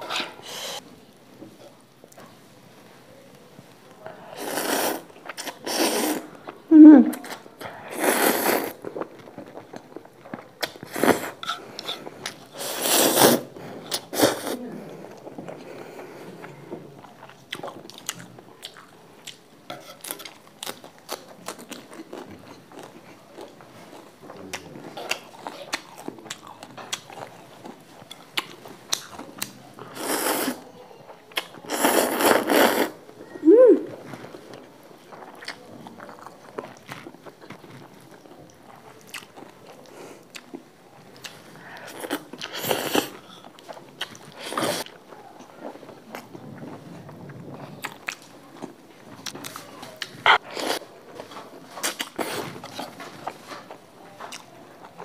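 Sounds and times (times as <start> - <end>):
noodle slurping: 4.3 - 6.3, 7.9 - 8.8, 10.8 - 14.6
chewing: 4.5 - 33.0, 33.9 - 55.0.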